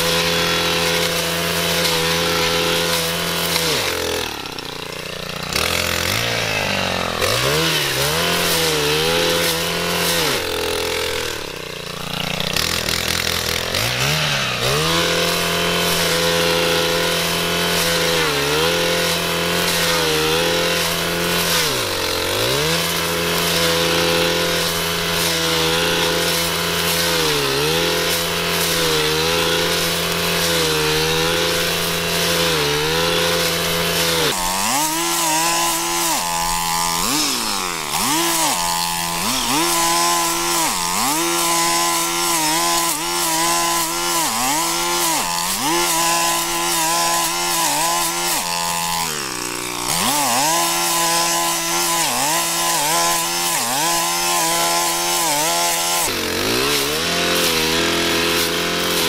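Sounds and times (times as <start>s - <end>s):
blade cutting thick grass: 0.0s - 59.0s
brushcutter engine at high revs: 0.0s - 59.0s.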